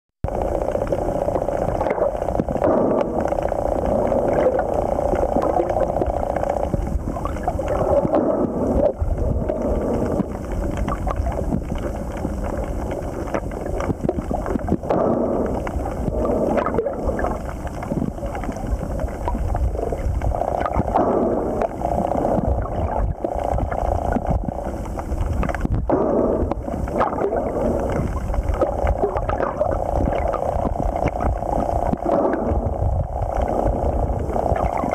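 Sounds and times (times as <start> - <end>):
muffled underwater rushing: 0.2 - 34.9.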